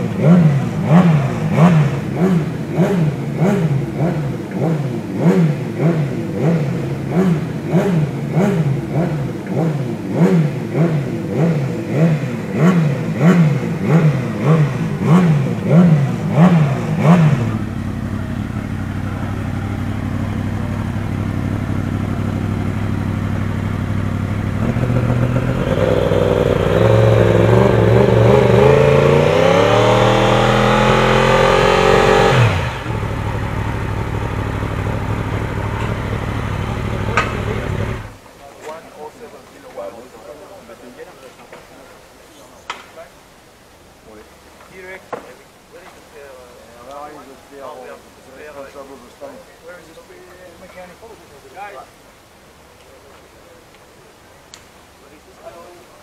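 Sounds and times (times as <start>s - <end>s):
motorcycle engine revving and idling: 0.0s - 38.2s.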